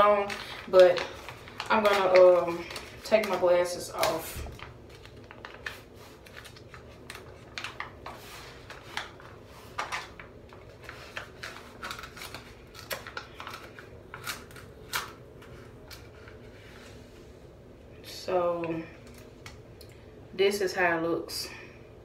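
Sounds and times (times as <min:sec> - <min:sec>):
foil packet crinkling: 0:00.0 - 0:16.6.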